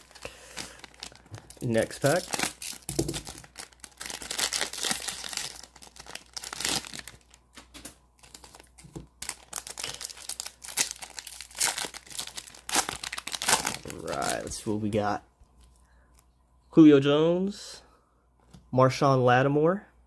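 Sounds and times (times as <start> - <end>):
foil pack crinkling and tearing: 0.0 - 14.6.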